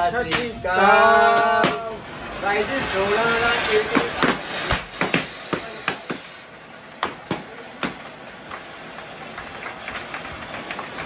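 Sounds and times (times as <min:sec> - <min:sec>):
steady hiss: 0:00.0 - 0:11.0
people clapping: 0:00.2 - 0:00.6, 0:01.3 - 0:01.8, 0:03.9 - 0:06.3, 0:07.0 - 0:11.0
party poppers popping: 0:01.3 - 0:02.0, 0:02.7 - 0:06.4.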